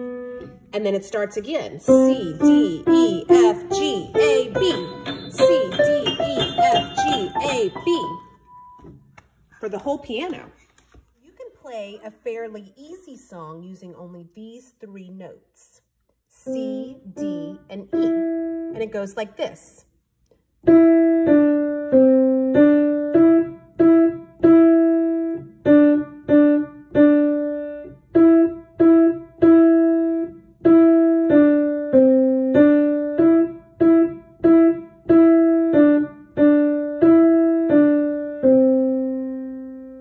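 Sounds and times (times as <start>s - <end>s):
piano melody single notes: 0.0s - 0.8s, 1.8s - 9.2s, 16.4s - 19.1s, 20.6s - 40.0s.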